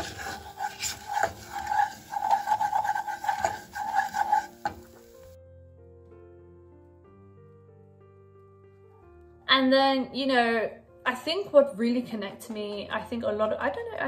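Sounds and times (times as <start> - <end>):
wooden spatula scraping saucepan: 0.0 - 5.4.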